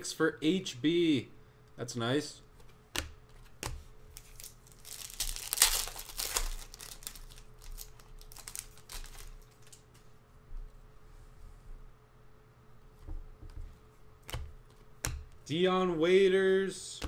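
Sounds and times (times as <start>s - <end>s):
foil wrapper crinkling and tearing: 4.2s - 9.9s.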